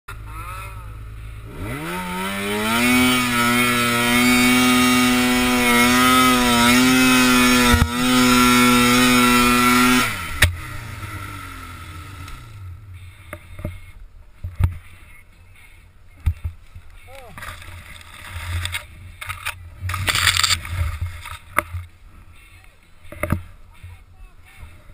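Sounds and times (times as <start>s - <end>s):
snowmobile engine revving: 0.1s - 13.5s.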